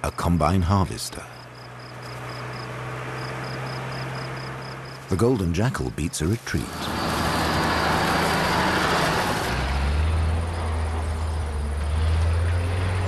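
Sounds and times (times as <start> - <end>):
deep engine drone: 0.0 - 13.0
rushing machine noise: 6.5 - 12.6.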